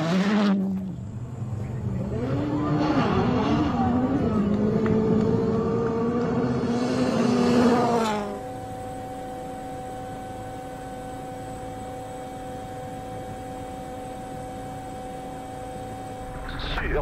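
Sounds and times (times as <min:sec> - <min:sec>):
rally car passing at speed: 0:00.0 - 0:08.5
steady quiet hum: 0:08.2 - 0:17.0.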